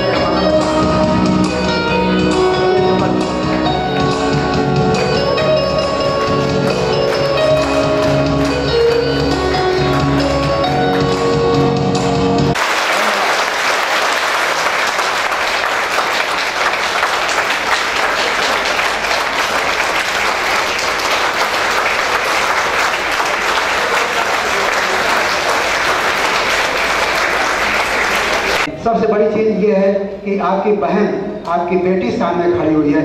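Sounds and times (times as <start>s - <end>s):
music: 0.0s - 12.6s, 18.7s - 28.6s
audience applauding: 3.0s - 11.3s, 12.5s - 28.7s.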